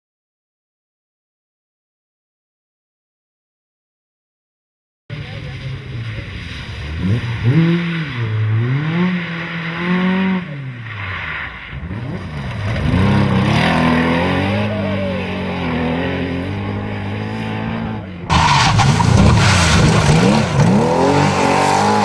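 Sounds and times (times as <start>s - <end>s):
rally car engines revving: 5.1s - 22.0s.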